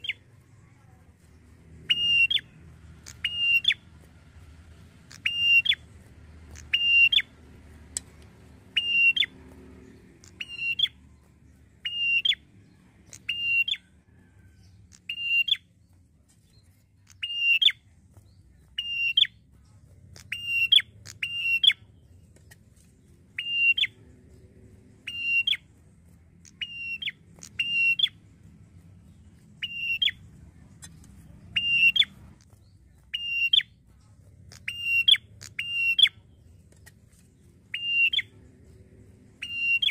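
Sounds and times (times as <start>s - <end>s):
bird calling sharp notes: 1.8s - 4.1s, 5.0s - 11.1s, 11.8s - 12.4s, 13.1s - 13.9s, 14.9s - 15.7s, 17.1s - 17.8s, 18.8s - 19.4s, 20.2s - 21.9s, 23.4s - 24.1s, 25.0s - 25.7s, 26.4s - 28.2s, 29.6s - 30.2s, 30.8s - 32.5s, 33.1s - 33.7s, 34.5s - 36.3s, 37.7s - 38.8s, 39.4s - 39.9s.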